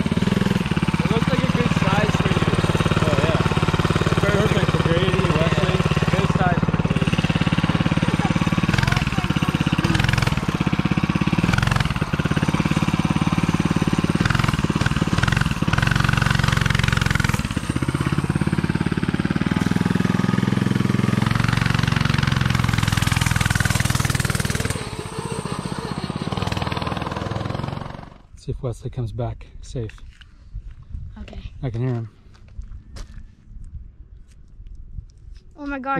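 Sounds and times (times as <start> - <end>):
mini bike engine running: 0.0 - 28.3.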